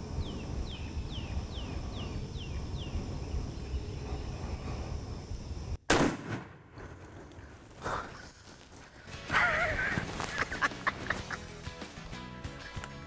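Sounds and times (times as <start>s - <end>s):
shotgun blast: 5.9s - 6.6s.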